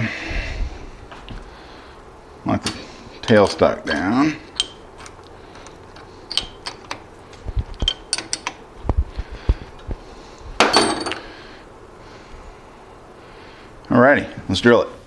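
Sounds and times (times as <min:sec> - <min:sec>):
metal clicks and knocks: 0:04.5 - 0:07.1, 0:07.7 - 0:08.6.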